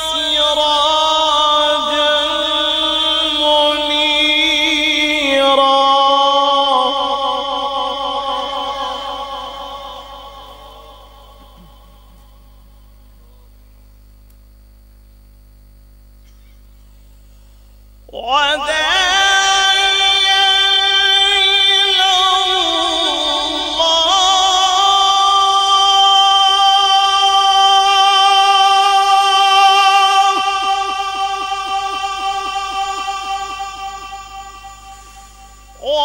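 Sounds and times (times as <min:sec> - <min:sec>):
man reciting in melodic voice: 0:00.0 - 0:13.6, 0:18.1 - 0:36.0
faint low hum: 0:00.0 - 0:36.0.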